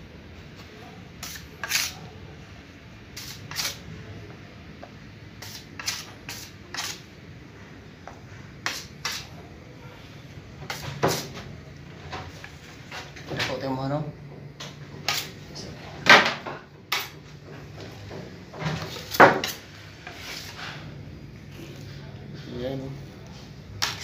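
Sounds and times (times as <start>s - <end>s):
putty knife scraping: 1.2s - 2.0s, 3.2s - 3.8s, 5.4s - 7.0s.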